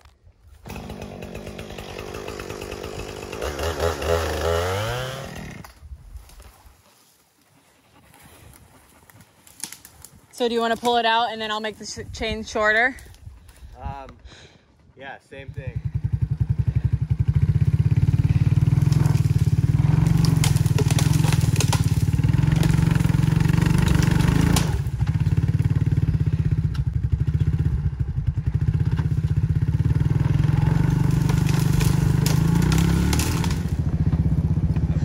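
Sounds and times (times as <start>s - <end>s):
atv engine running under load: 15.4s - 35.0s.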